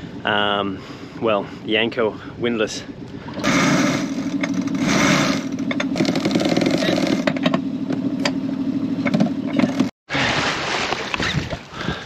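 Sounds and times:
boat engine running: 1.4s - 12.0s
winch clicking: 3.1s - 7.6s.

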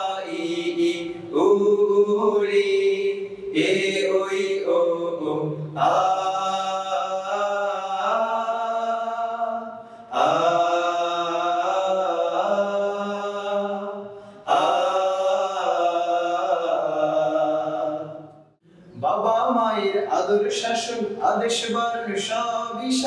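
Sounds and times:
men singing in harmony: 0.0s - 18.5s.

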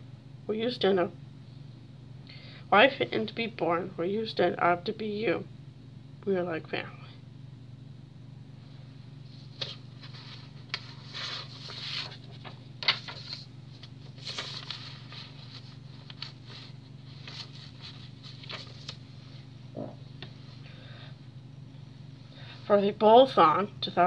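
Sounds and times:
steady low hum: 0.0s - 24.0s
paper rustling: 9.2s - 19.5s.

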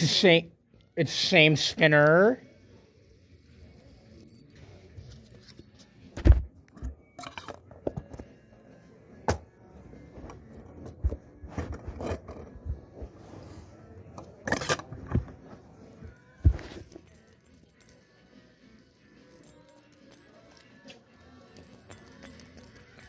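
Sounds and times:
knocks and scrapes: 10.2s - 13.5s
light metallic clinks: 16.8s - 23.0s.

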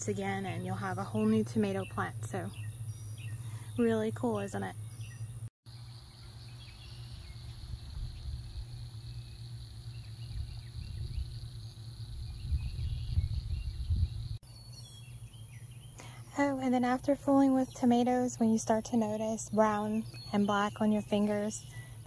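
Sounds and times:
insects chirring: 4.9s - 14.4s
low rumble on microphone: 6.8s - 14.4s.

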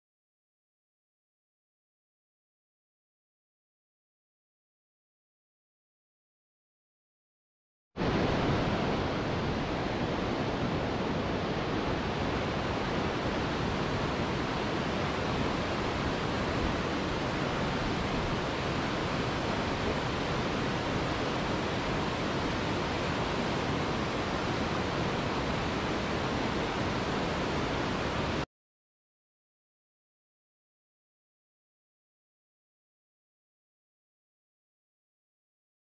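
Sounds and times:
waterfall rushing: 8.0s - 28.4s.

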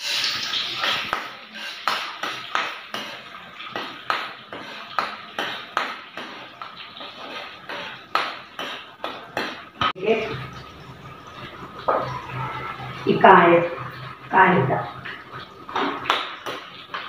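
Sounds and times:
metal ladle scraping a pan: 0.0s - 9.8s
food frying in oil: 0.0s - 17.0s.

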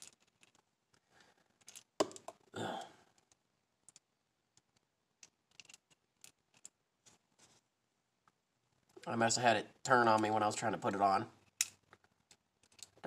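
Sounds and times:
small metal parts clicking: 0.0s - 2.3s, 3.2s - 6.8s, 11.4s - 13.0s.

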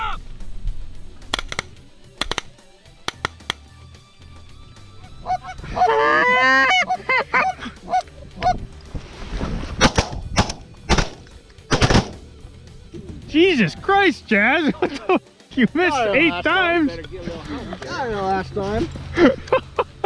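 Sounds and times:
geese honking: 4.8s - 8.7s
shotgun shots: 9.8s - 12.2s.

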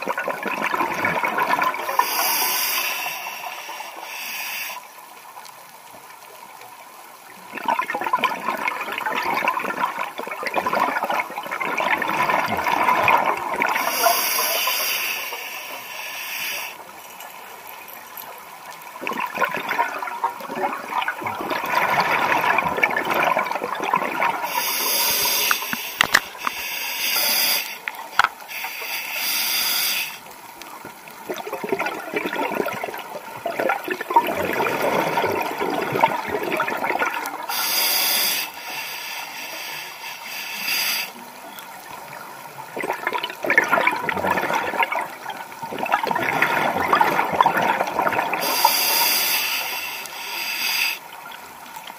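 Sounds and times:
exhaled bubbles gurgling underwater: 0.0s - 3.1s, 7.1s - 15.8s, 18.7s - 26.6s, 30.2s - 37.7s, 41.1s - 49.8s
regulator hissing on inhalation: 1.9s - 4.9s, 13.7s - 16.8s, 24.4s - 30.3s, 37.5s - 41.2s, 48.4s - 51.0s.

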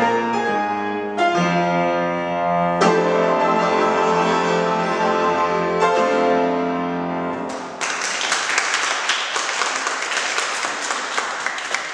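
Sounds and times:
audience applause: 7.5s - 11.9s.

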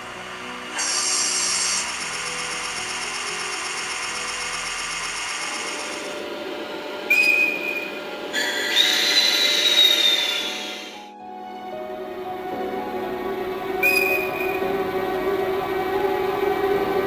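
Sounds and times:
steady high whine: 0.0s - 17.0s
loud high whistle tone: 0.4s - 6.1s, 7.1s - 11.2s, 13.8s - 15.0s
air hiss burst: 0.7s - 4.4s.

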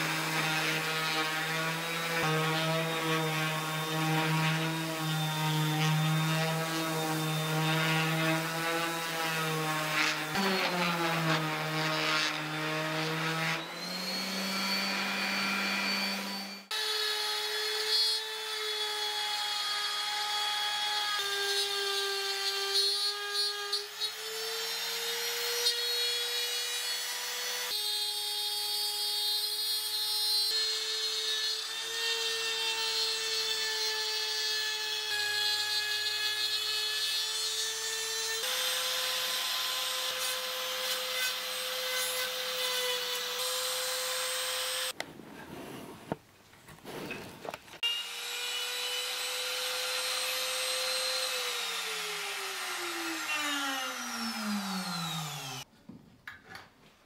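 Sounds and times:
trim router whining: 0.1s - 19.3s, 47.8s - 55.7s
orbital sander running: 47.9s - 55.6s.

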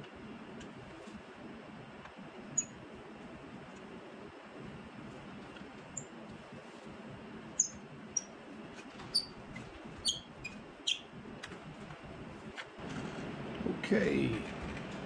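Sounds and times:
hex driver squeaking: 7.6s - 8.3s, 9.0s - 11.1s.

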